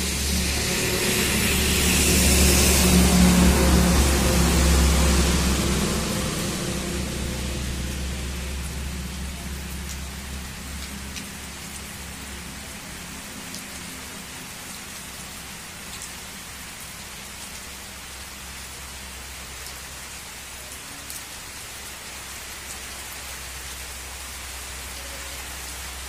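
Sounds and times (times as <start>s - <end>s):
heavy rain on road and trees: 0.0s - 26.0s.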